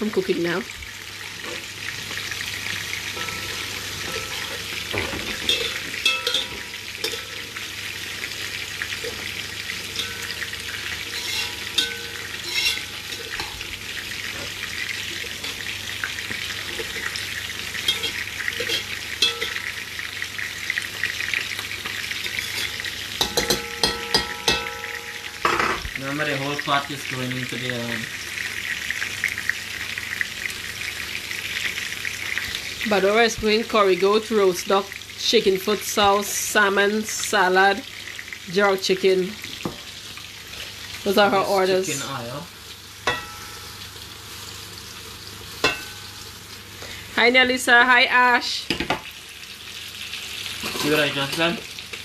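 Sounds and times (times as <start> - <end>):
food sizzling in a pot: 0.0 - 52.0
spoon scraping a pot: 11.0 - 13.6, 17.9 - 19.7, 22.3 - 24.7.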